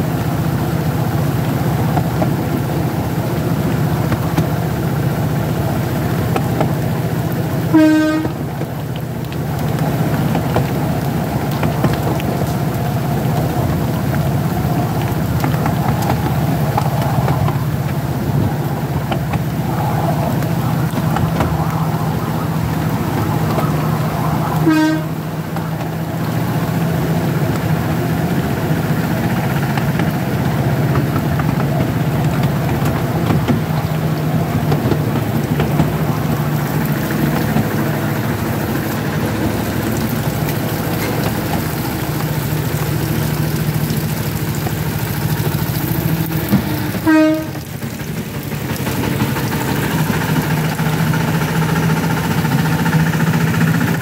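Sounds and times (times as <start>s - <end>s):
miniature locomotive engine drone: 0.0s - 54.0s
short horn toots: 7.8s - 8.4s, 24.6s - 25.2s, 46.8s - 47.6s.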